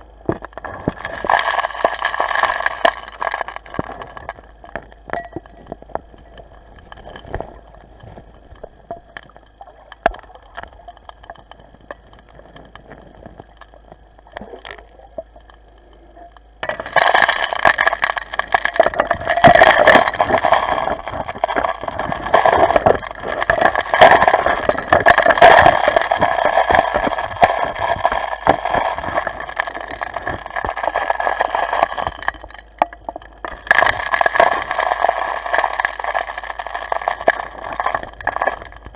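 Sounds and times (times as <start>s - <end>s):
underwater dredge drone: 0.0s - 38.9s
water and gravel rushing through hose: 0.6s - 4.5s, 16.6s - 32.7s, 33.4s - 38.9s.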